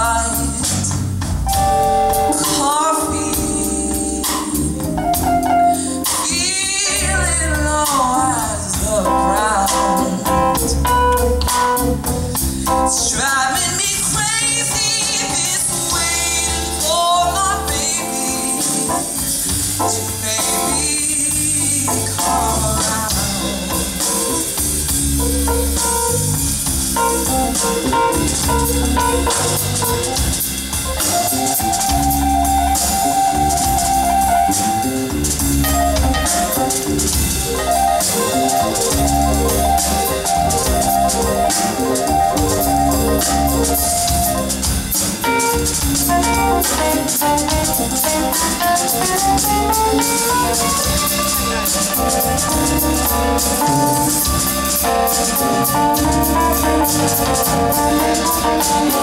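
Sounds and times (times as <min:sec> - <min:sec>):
drum kit: 0:00.0 - 0:59.0
electric bass: 0:00.0 - 0:59.0
stage piano: 0:00.0 - 0:59.0
woman singing wordless lines: 0:02.3 - 0:04.6, 0:05.9 - 0:10.6, 0:12.9 - 0:19.2, 0:19.9 - 0:24.0.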